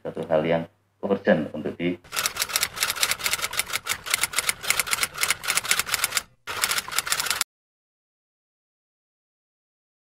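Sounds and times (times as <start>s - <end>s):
typewriter keystroke clicks: 2.1s - 7.4s.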